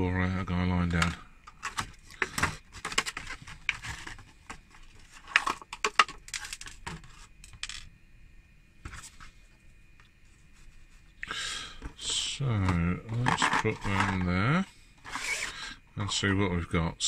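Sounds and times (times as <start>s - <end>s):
metal figures clattering: 13.1s - 14.3s.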